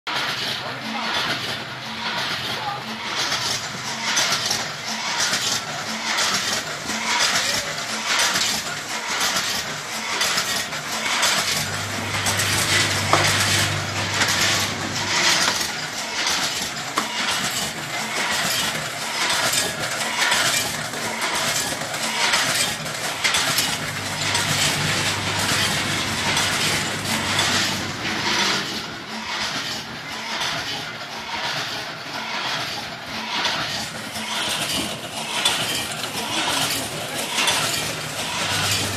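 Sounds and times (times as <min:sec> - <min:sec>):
packaging machine clatter and clinking: 0:00.2 - 0:38.9
low hum: 0:11.4 - 0:16.3, 0:23.2 - 0:30.0.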